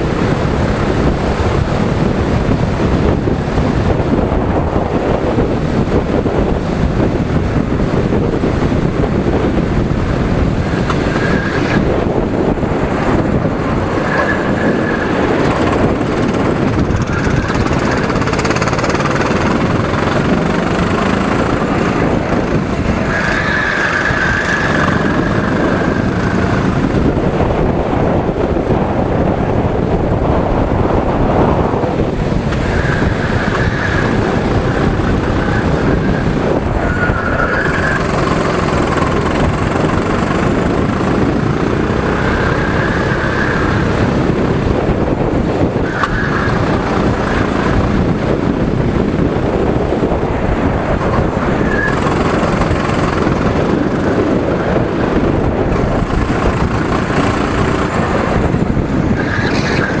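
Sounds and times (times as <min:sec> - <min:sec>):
go-kart engines racing: 0:00.0 - 1:00.0
wind rush on microphone: 0:00.0 - 1:00.0.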